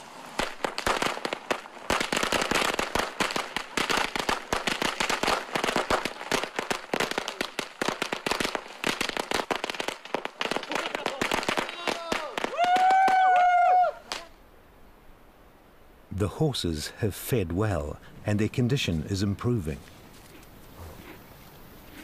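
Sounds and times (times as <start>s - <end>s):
firecrackers cracking: 0.0s - 14.4s.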